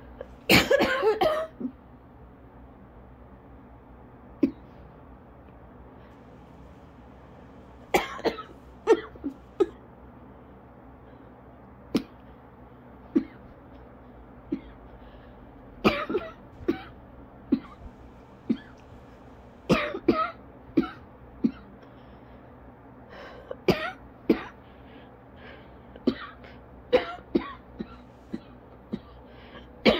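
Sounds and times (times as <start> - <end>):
person coughing: 0.5 - 1.7, 7.9 - 9.8, 15.8 - 17.9, 18.5 - 18.8, 19.7 - 21.7, 23.6 - 24.6, 26.0 - 29.2.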